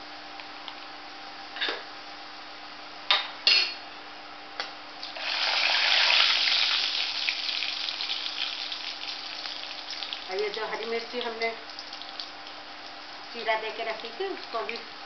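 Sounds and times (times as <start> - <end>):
spices sizzling in hot oil: 5.0 - 15.0.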